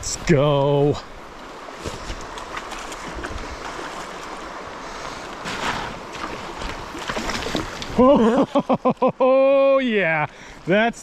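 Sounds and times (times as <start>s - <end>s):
stream water running: 0.0s - 11.0s
fish splashing in water: 5.4s - 7.9s.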